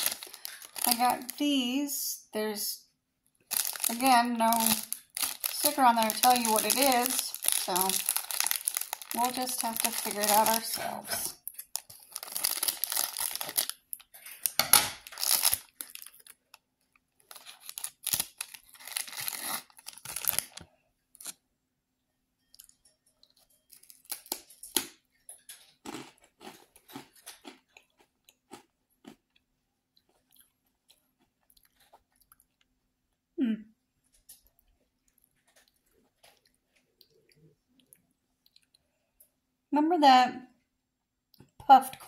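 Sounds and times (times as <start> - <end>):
crunchy snack chewing: 0.0 - 1.1, 3.4 - 16.6, 17.2 - 21.4, 25.6 - 29.4
scissors cutting plastic bag: 0.0 - 1.3, 3.5 - 13.7, 14.4 - 16.3, 17.3 - 20.6
plastic bag crinkling: 0.0 - 1.5, 3.4 - 16.6, 17.2 - 21.4, 23.7 - 24.8.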